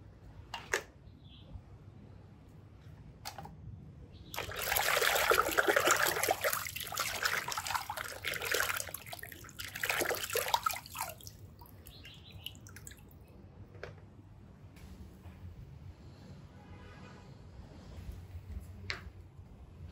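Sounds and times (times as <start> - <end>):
water drips: 4.3 - 13.4
hands sloshing through muddy water: 4.4 - 13.0.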